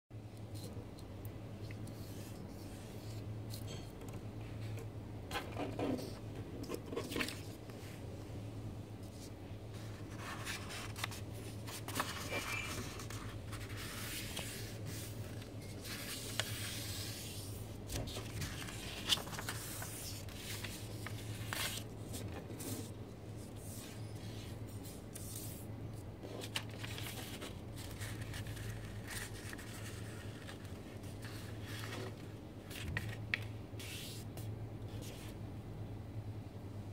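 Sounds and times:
paper rustling and crinkling: 5.3s - 7.7s, 9.1s - 34.2s.

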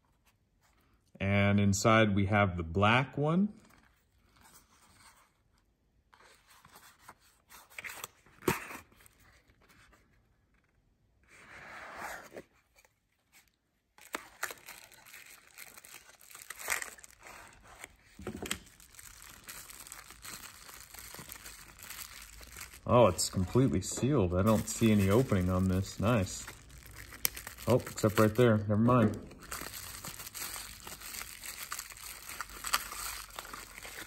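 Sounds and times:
bubble-wrap bag crinkling: 14.0s - 34.0s.

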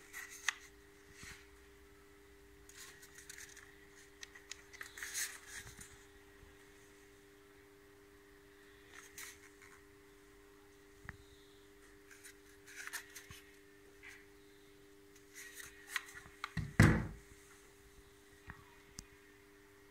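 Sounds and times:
faint steady hum: 0.0s - 19.9s
tool thump on wooden bench: 16.6s - 17.2s.

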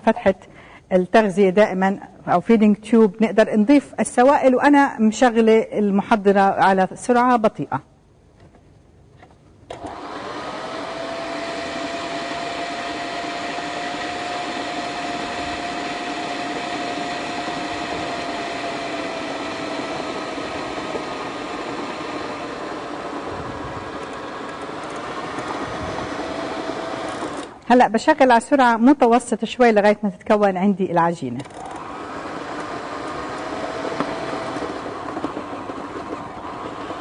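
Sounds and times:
food processor motor whining: 9.7s - 27.6s, 31.4s - 37.0s.

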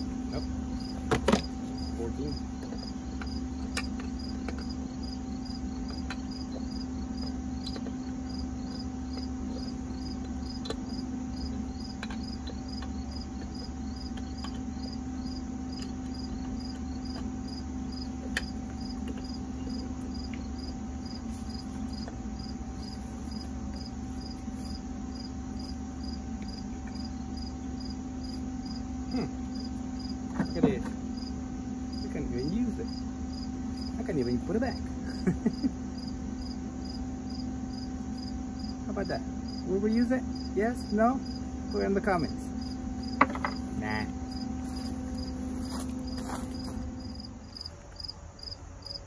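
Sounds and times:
crickets chirping: 0.0s - 49.0s
low hum: 0.0s - 49.0s.

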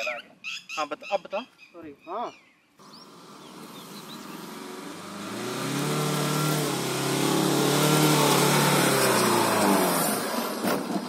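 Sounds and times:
diesel engine working hard: 2.8s - 11.0s.

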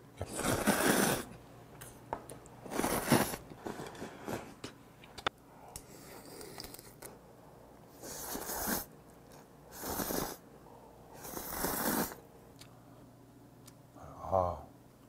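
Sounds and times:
man slurping noodles: 0.3s - 1.3s, 8.0s - 8.9s, 9.7s - 10.4s, 11.2s - 12.2s.

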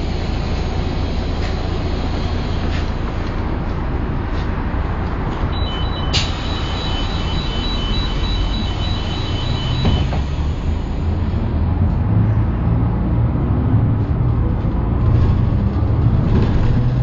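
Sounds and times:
diesel engine running: 0.0s - 17.0s
two-tone warning beep: 5.5s - 10.2s.

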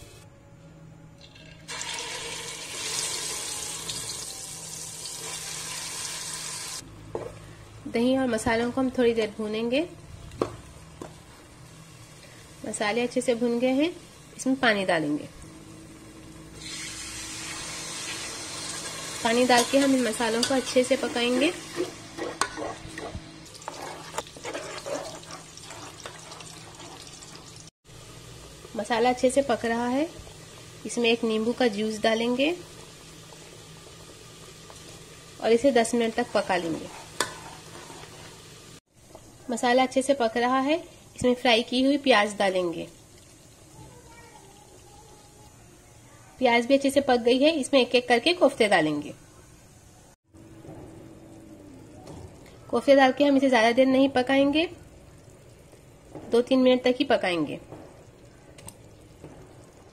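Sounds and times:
food sizzling in hot oil: 1.2s - 6.8s, 8.8s - 49.9s
gravy sloshing and bubbling: 20.8s - 27.7s.

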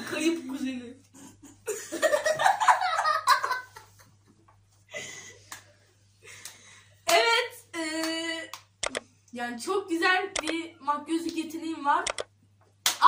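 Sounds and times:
girls laughing: 1.1s - 4.2s.

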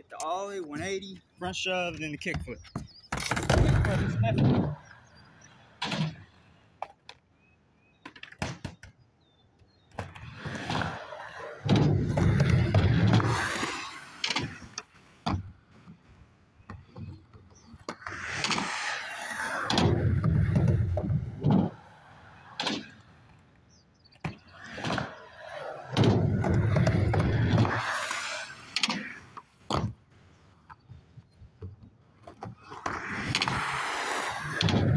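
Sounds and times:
skateboard wheels rumbling on ramps: 3.2s - 6.2s, 9.9s - 16.1s, 16.8s - 23.4s, 24.1s - 30.1s, 31.4s - 34.9s.

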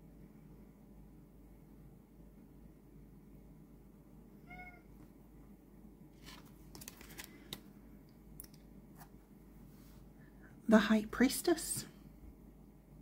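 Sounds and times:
cat meowing faintly: 4.4s - 5.0s.

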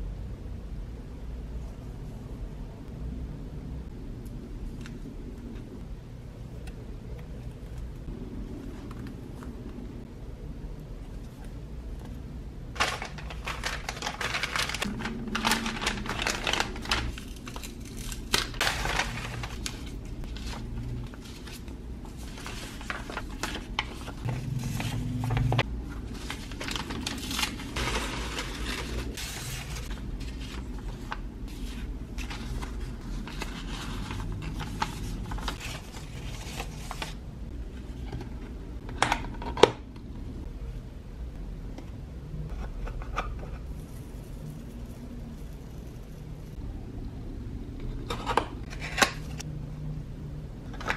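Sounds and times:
paper rustling and crinkling: 12.7s - 37.2s.

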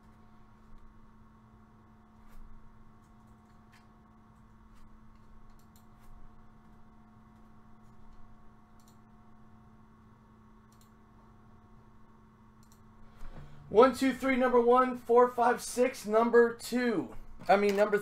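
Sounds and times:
low electrical hum: 0.0s - 18.0s
computer mouse clicks: 3.0s - 6.1s, 7.8s - 9.1s, 10.6s - 11.0s, 12.6s - 12.9s.

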